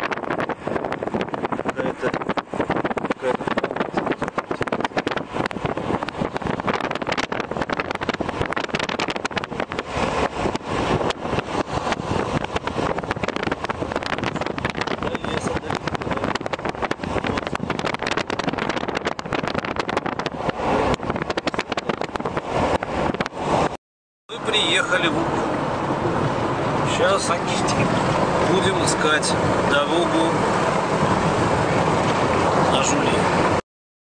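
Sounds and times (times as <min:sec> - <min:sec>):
wind buffeting the microphone: 0:00.0 - 0:23.8
car road and engine noise: 0:00.0 - 0:33.6.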